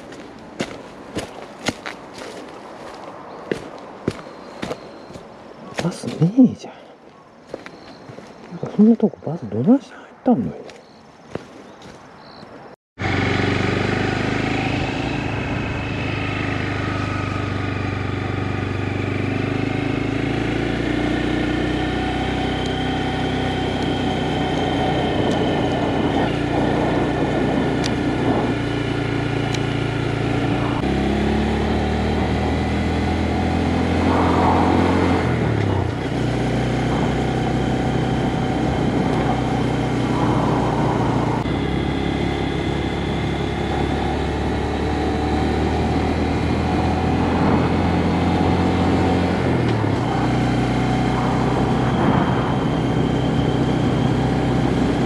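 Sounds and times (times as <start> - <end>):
small motorcycle engine running: 13.0 - 55.0.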